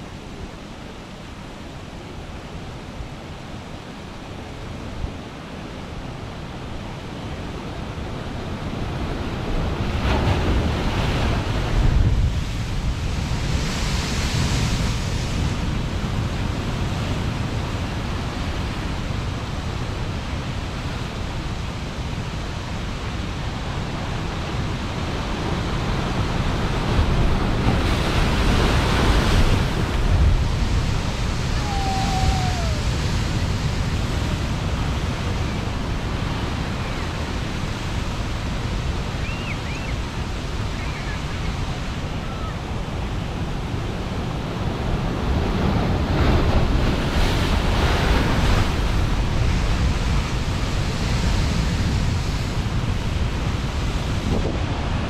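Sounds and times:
ocean surf crashing on rocks: 0:00.0 - 0:55.0
wind buffeting microphone: 0:23.7 - 0:55.0.

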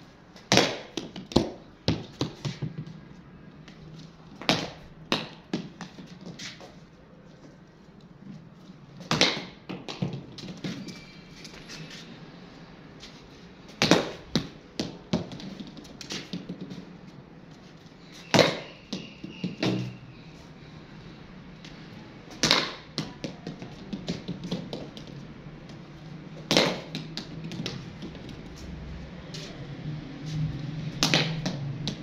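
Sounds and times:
ball bouncing on concrete: 0:00.4 - 0:06.8, 0:09.0 - 0:11.8, 0:13.7 - 0:17.2, 0:18.1 - 0:20.0, 0:21.6 - 0:28.7, 0:30.8 - 0:32.0.

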